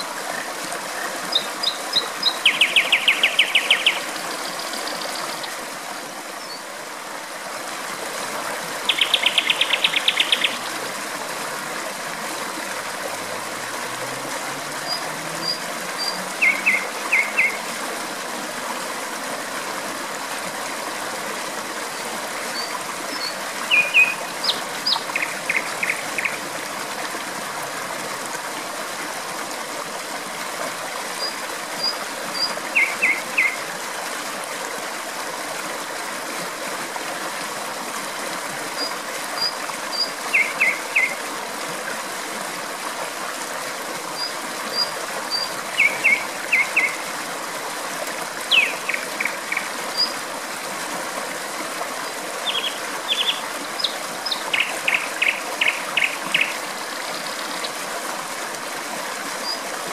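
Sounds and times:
flowing water: 0:00.0 - 0:59.9
nightingale singing: 0:01.3 - 0:04.1, 0:08.9 - 0:10.6, 0:14.8 - 0:17.6, 0:22.6 - 0:26.4, 0:48.5 - 0:50.1, 0:52.4 - 0:57.6.

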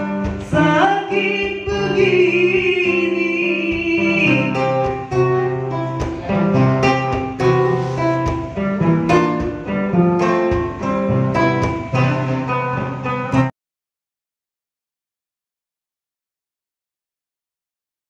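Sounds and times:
acoustic guitar picked melody: 0:00.0 - 0:13.5.

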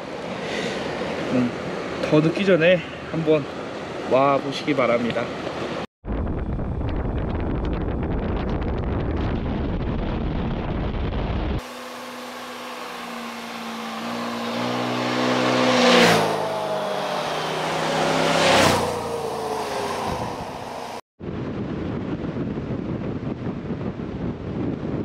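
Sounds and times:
wind buffeting microphone: 0:06.0 - 0:11.6, 0:13.2 - 0:25.0
motor scooters riding past: 0:11.7 - 0:21.0.

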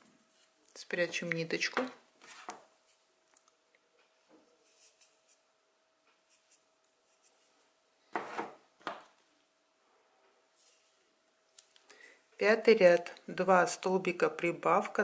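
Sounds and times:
faint steady hum: 0:00.0 - 0:15.0
hands rubbing and rustling yarn: 0:04.2 - 0:05.5, 0:06.2 - 0:07.8.

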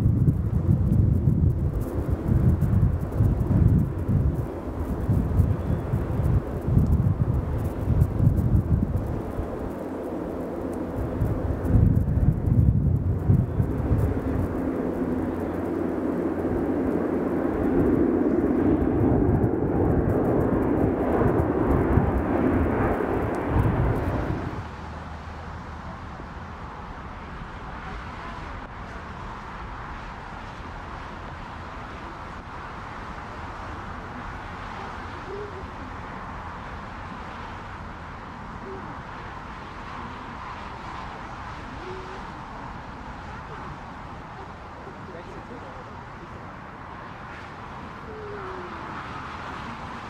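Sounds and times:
wind buffeting microphone: 0:00.0 - 0:24.7
airliner landing hiss and rumble: 0:00.0 - 0:50.0
jet engines roaring overhead: 0:00.0 - 0:50.0.

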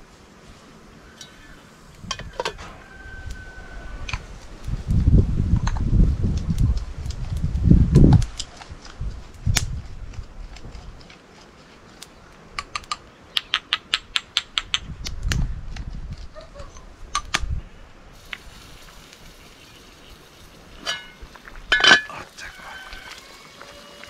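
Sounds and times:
metal lid clanking: 0:20.8 - 0:22.2.

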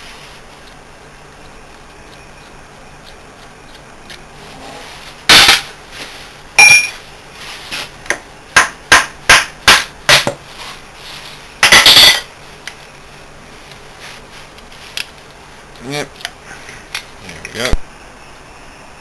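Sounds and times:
ringing clanks: 0:06.6 - 0:07.0.

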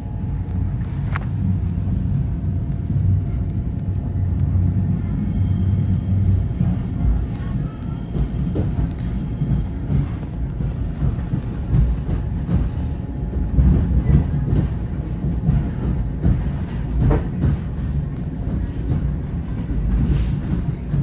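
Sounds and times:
train wheels rumbling: 0:00.0 - 0:21.0
train knocks: 0:04.4 - 0:21.0.

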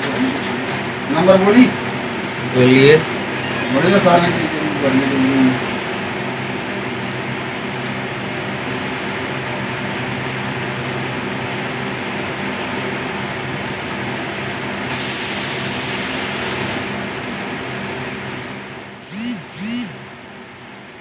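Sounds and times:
sharp high hiss: 0:14.9 - 0:16.9.

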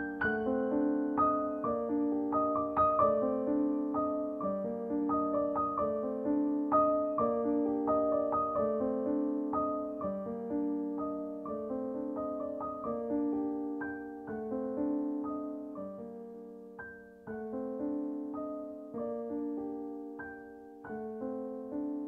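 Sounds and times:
piano music: 0:00.0 - 0:22.0.

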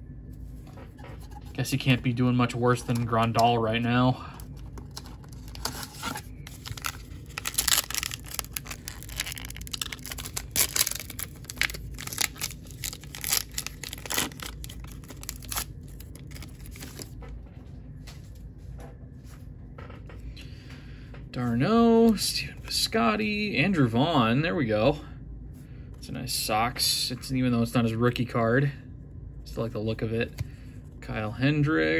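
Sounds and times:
wrapper tearing and crinkling: 0:04.7 - 0:17.1.

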